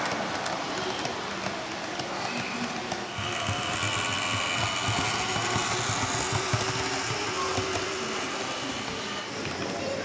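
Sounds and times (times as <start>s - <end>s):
wheels rattling on rails: 0.0s - 10.0s
electric motor whine: 3.1s - 9.4s.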